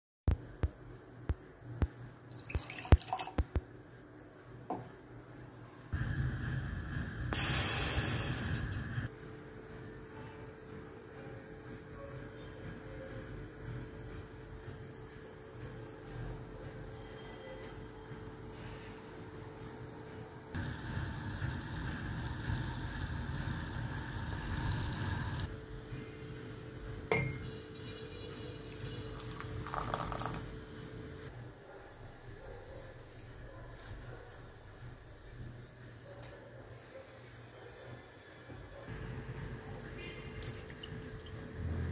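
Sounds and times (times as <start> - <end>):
gas burner rumble and hiss: 5.9 - 9.2, 20.6 - 27.3
metal pan clinking against glass mug: 27.1 - 27.4.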